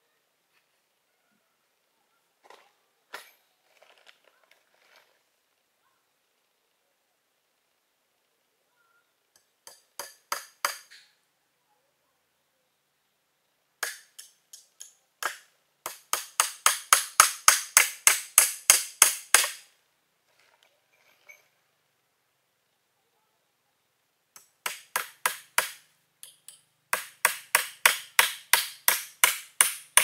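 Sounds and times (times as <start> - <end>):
tool striking bamboo: 9.4 - 11.1, 13.8 - 19.7, 24.4 - 30.0.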